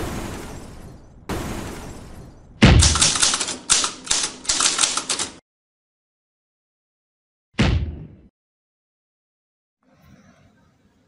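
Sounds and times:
typewriter key clacks: 2.8 - 5.4
impact hits: 7.6 - 8.3.

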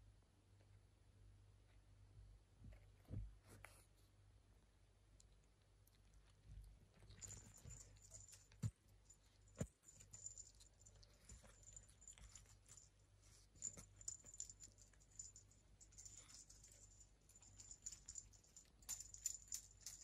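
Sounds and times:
kitten licking and smacking: 5.0 - 14.0.

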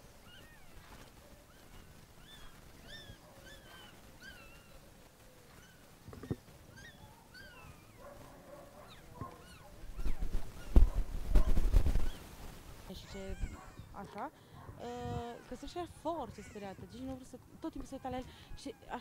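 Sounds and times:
puppies crying: 0.2 - 6.0, 6.7 - 10.7, 13.1 - 14.0, 15.3 - 17.1.

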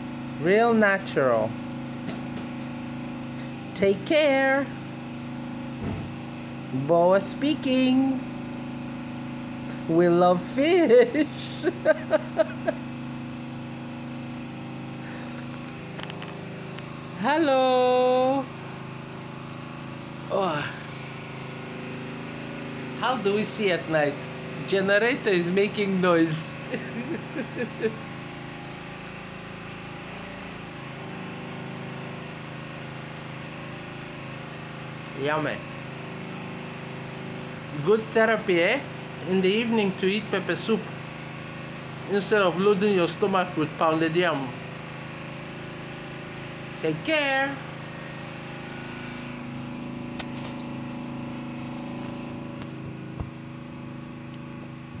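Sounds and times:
generator running: 0.0 - 55.0
person laughing: 10.8 - 12.9, 26.4 - 28.0.

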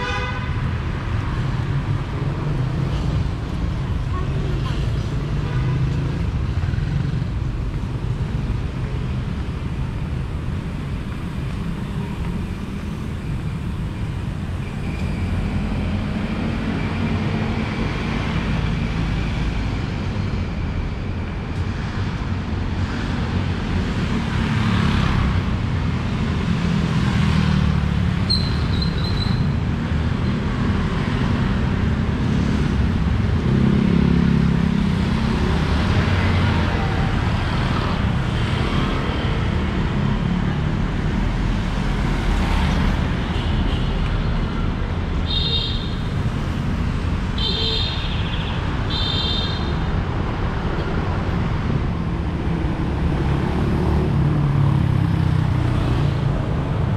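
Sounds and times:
road traffic rumble: 0.0 - 56.9.

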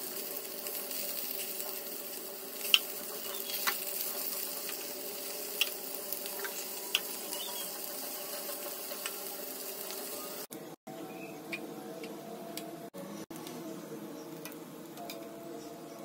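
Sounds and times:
food sizzling in oil: 0.0 - 10.5.

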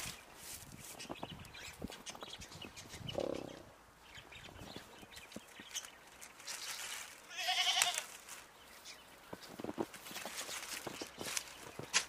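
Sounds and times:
goats bleating: 7.3 - 8.1.

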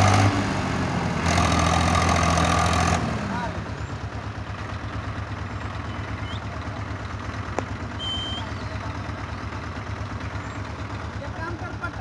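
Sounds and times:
tractor diesel engine rumbling: 0.0 - 12.0
high whistle: 8.0 - 8.6.

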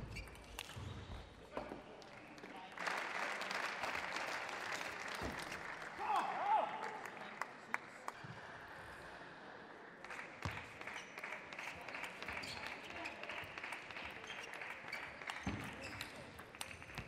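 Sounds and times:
murmur of crowd chatter: 6.5 - 17.0.

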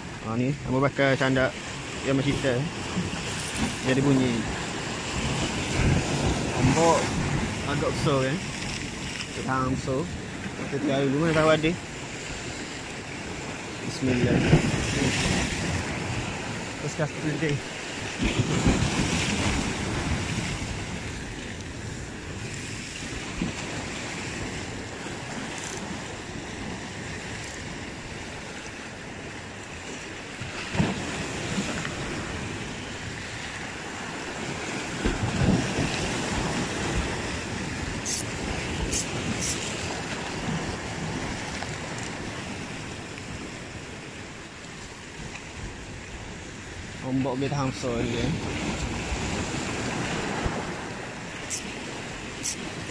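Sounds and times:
surf breaking on rocks: 1.2 - 52.9
wind buffeting microphone: 2.6 - 29.3, 30.4 - 44.2.

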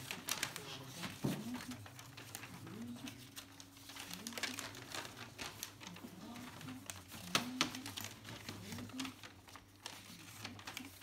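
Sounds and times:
paper rustling and crinkling: 0.0 - 11.0.

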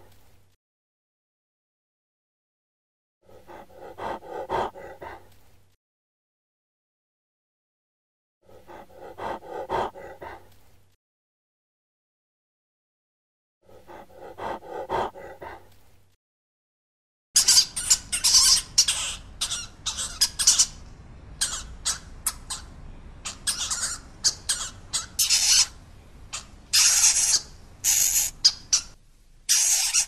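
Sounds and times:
faint animal sound: 3.2 - 5.5, 8.4 - 10.8, 13.6 - 15.9, 17.4 - 30.0.

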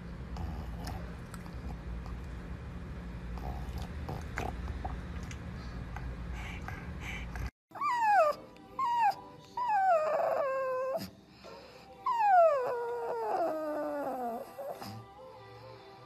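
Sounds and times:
puppy howling: 7.7 - 11.1, 12.0 - 14.8.

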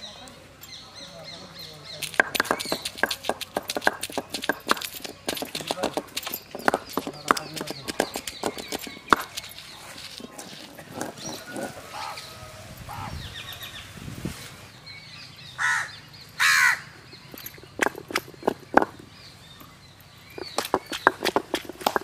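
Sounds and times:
stone roller knocking on stone: 2.0 - 11.8, 17.3 - 19.1, 20.4 - 22.0
crow cawing: 15.6 - 17.0.

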